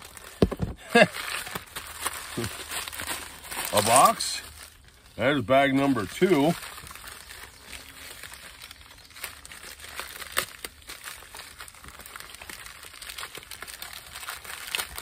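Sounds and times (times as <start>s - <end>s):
plastic packing bags crinkling: 0.0s - 15.0s.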